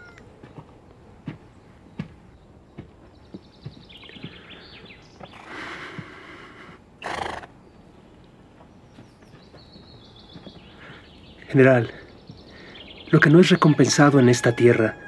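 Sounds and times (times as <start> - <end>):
loud animal call: 0.0 - 0.2, 7.0 - 7.6, 13.6 - 15.0.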